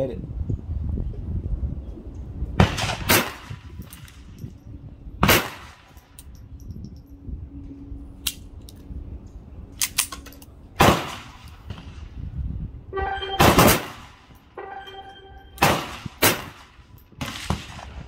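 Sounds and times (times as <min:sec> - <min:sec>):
pistol shots: 0:05.2 - 0:05.8, 0:13.4 - 0:14.2, 0:15.6 - 0:18.0
ringing tone: 0:13.0 - 0:13.6, 0:14.6 - 0:15.6.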